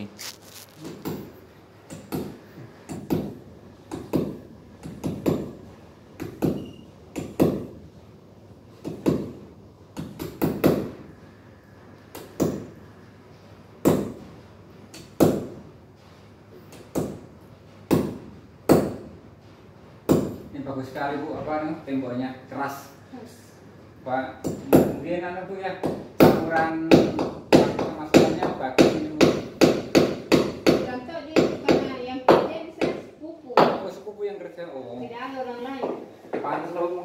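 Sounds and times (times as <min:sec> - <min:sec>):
hammer hitting nail: 0:06.2 - 0:07.7, 0:10.0 - 0:11.0, 0:25.8 - 0:33.0.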